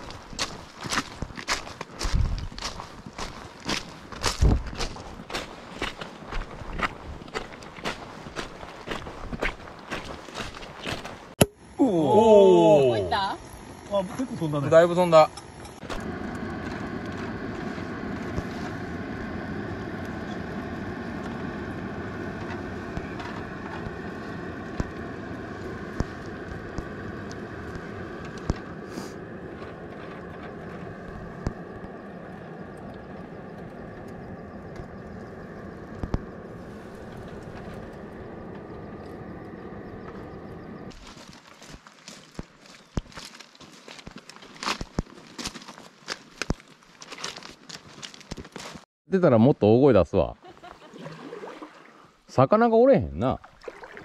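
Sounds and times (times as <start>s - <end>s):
noisy wash: 13.6s - 40.9s
motor humming: 15.3s - 40.9s.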